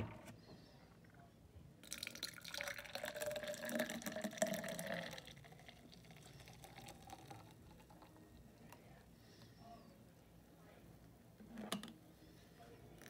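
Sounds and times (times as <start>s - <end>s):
drink pouring into glass: 1.8s - 8.2s.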